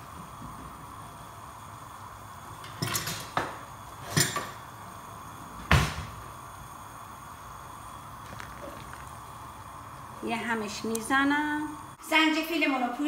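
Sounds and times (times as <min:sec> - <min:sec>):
soup bubbling in a pot: 0:00.0 - 0:12.0.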